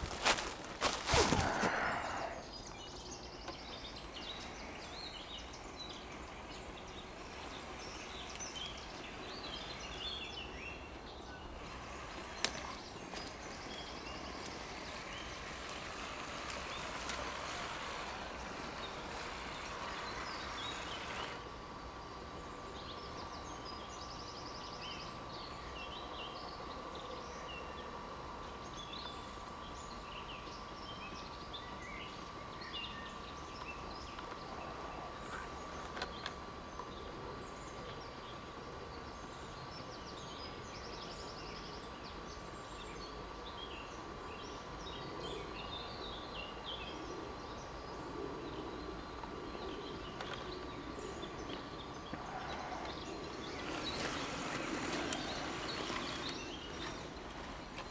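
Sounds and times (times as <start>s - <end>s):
background hiss: 0.0s - 57.9s
short bird calls: 0.1s - 2.9s.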